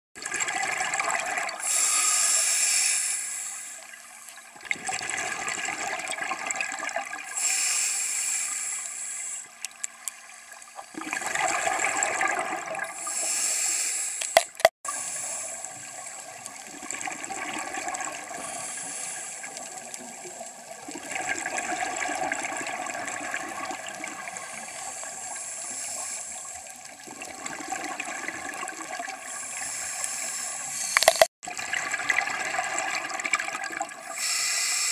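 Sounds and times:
exhaled bubbles underwater: 0.2 - 1.8, 3.8 - 7.4, 10.7 - 13.2, 14.9 - 25.4, 26.4 - 29.7, 31.4 - 34.2
steady bubbling wash: 0.2 - 7.5, 10.8 - 13.3, 14.9 - 30.8, 31.4 - 34.9
sharp click: 31.0 - 31.3.

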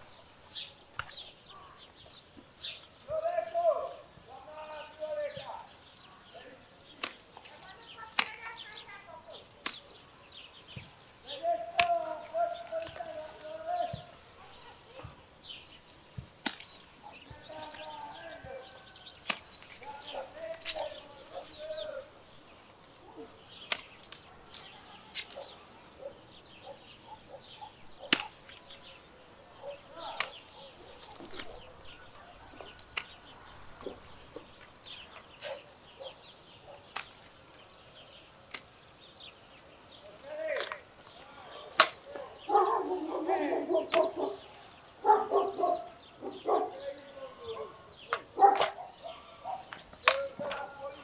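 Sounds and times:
pruning shears snipping branches: 0.9 - 1.3, 6.8 - 25.6, 27.7 - 29.1, 29.8 - 31.8, 32.5 - 35.7, 36.8 - 42.3, 43.1 - 45.6, 48.1 - 48.9, 49.6 - 51.0.

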